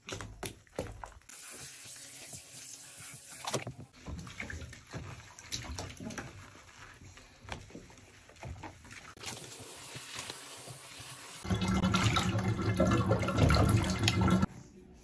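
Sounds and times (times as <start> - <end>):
hand lathering shampoo in hair: 1.4 - 12.0
bathwater splashing: 3.4 - 14.5
running water hiss: 9.2 - 11.6.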